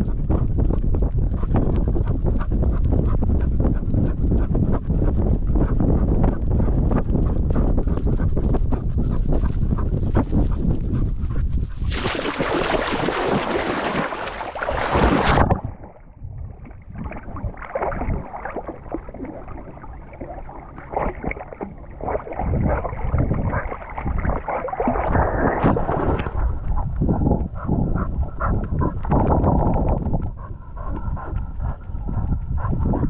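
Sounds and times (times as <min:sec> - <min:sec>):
muffled water sloshing: 0:11.6 - 0:31.2
dog splashing into water: 0:11.9 - 0:15.9, 0:16.5 - 0:26.6.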